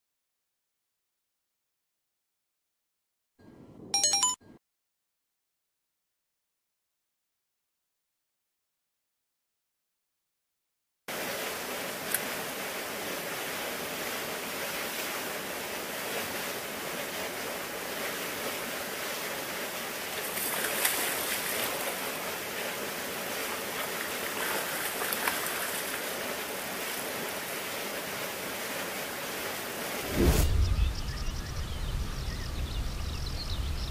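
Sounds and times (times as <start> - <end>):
river rushing: 11.1 - 30.6.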